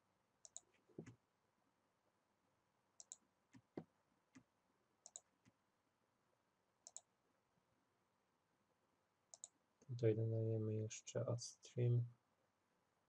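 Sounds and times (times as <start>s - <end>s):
computer mouse clicking: 0.4s - 1.2s, 3.0s - 5.6s, 6.8s - 7.1s, 9.3s - 9.6s.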